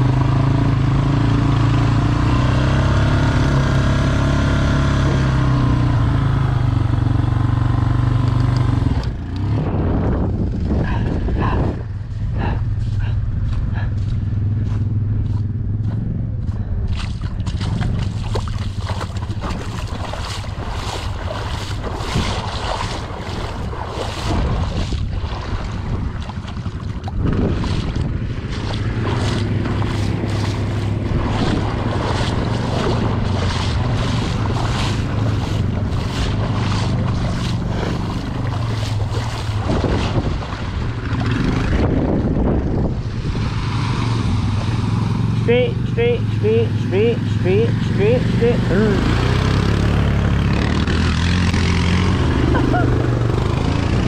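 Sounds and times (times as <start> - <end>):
atv engine running: 0.0 - 54.0
wind noise on microphone: 4.5 - 6.2, 8.7 - 45.5.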